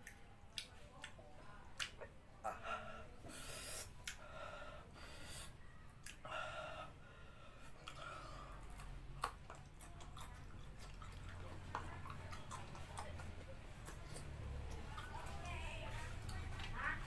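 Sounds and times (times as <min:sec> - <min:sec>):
man hissing sharp breaths: 0:03.2 - 0:05.6.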